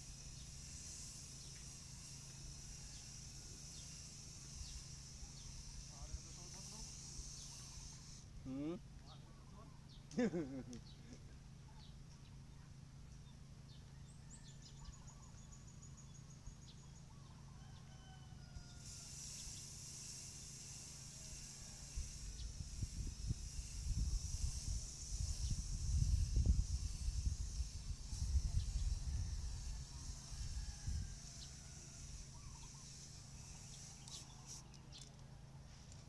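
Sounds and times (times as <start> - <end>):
faint bird chirps: 10.8 - 19.7, 32.2 - 35.2
aerosol spray can hissing: 18.8 - 35.0
wind on microphone: 22.0 - 31.4.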